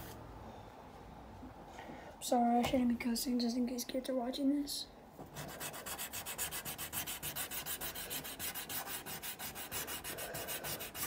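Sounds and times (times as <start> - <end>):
pencil shading on paper: 5.4 - 11.0.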